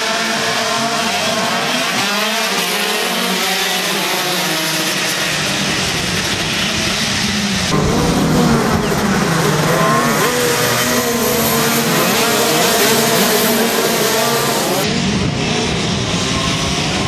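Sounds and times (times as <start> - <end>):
two-stroke kart engines racing: 0.0 - 17.0.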